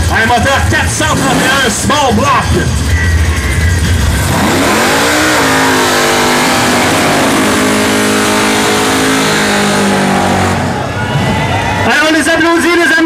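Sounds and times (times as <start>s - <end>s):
race car engine revving: 0.0s - 11.5s
spinning tyres hissing: 3.3s - 10.8s.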